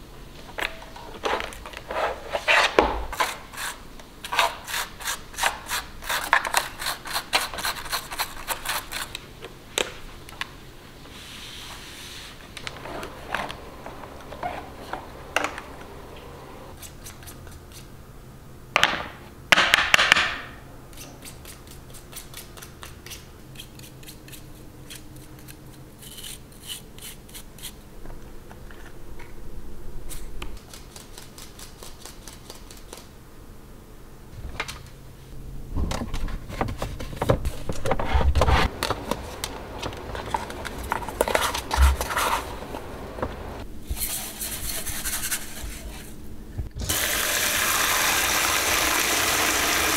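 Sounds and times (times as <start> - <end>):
plastic containers rubbing and knocking: 36.1 - 43.6
brush scratching a filter: 44.0 - 46.1.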